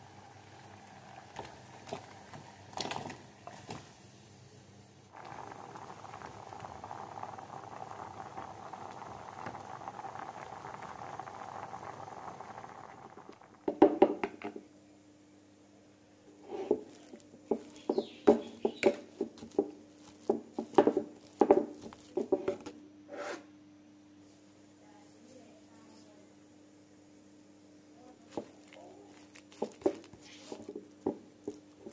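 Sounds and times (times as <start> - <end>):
water boiling in a saucepan: 0.0 - 14.6, 16.3 - 22.7, 28.1 - 31.9
strainer knocking on wooden bowl: 17.5 - 22.7.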